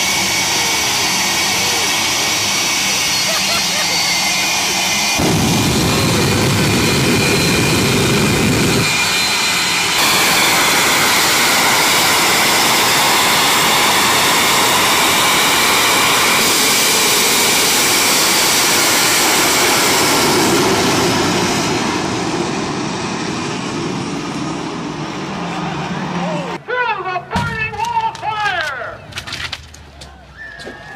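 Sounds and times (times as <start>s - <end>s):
jet engines with afterburners: 0.0s - 26.6s.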